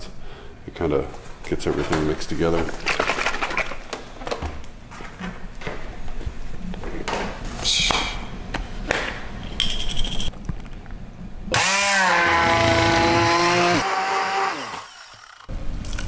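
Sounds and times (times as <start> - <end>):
immersion blender motor whining: 11.5 - 15.5.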